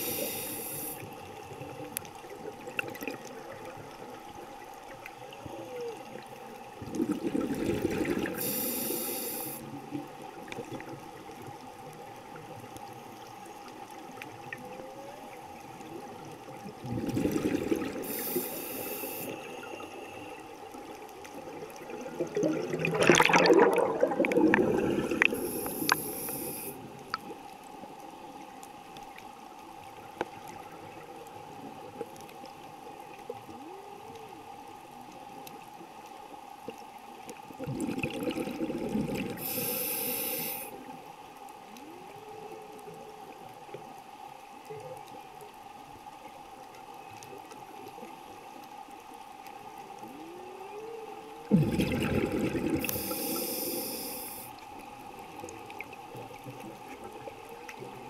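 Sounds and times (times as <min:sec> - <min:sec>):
diver regulator breathing: 0:00.0 - 0:01.2, 0:08.3 - 0:09.7, 0:18.0 - 0:20.5, 0:24.2 - 0:26.9, 0:39.4 - 0:40.8, 0:52.8 - 0:54.6
steady underwater hum: 0:00.0 - 0:58.0
whale song moans: 0:33.4 - 0:34.5, 0:41.7 - 0:43.4, 0:49.8 - 0:52.0.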